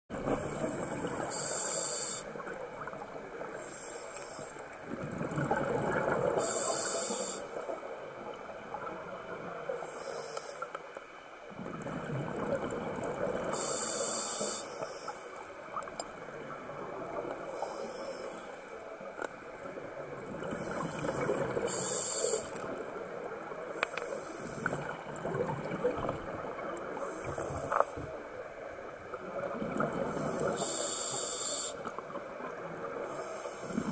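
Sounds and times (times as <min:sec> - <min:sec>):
scuba regulator inhalation hiss: 0:00.8 - 0:02.4, 0:03.5 - 0:04.6, 0:06.4 - 0:07.6, 0:09.8 - 0:10.7, 0:13.4 - 0:15.4, 0:17.6 - 0:18.6, 0:20.6 - 0:22.7, 0:23.7 - 0:24.9, 0:30.1 - 0:31.9
exhaled bubbles rushing: 0:04.9 - 0:06.4, 0:11.5 - 0:13.5, 0:24.7 - 0:26.9.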